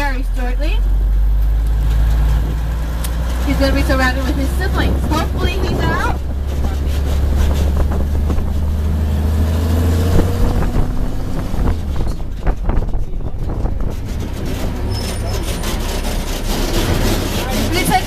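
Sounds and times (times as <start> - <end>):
truck engine droning: 0.0 - 18.0
wind on microphone: 3.8 - 14.9.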